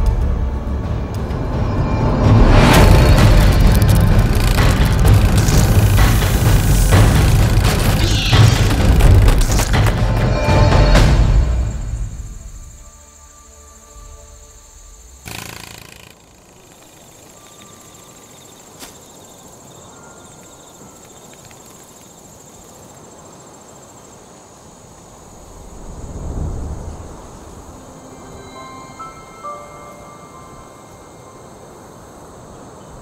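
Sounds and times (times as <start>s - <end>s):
high cricket-like trill: 1.8s - 24.1s
insects trilling: 2.6s - 33.0s
deep swell: 25.4s - 30.9s.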